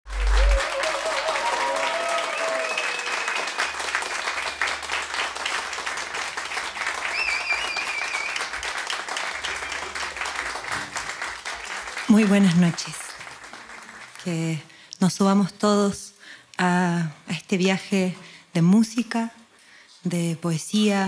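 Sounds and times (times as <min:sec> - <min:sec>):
high calls from crowd: 0:00.1 - 0:03.8
audience applauding: 0:00.1 - 0:14.6.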